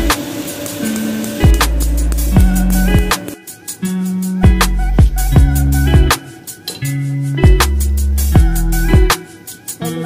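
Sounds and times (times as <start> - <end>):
drum hits: 0.0 - 3.4
sustained bass notes: 1.5 - 3.1.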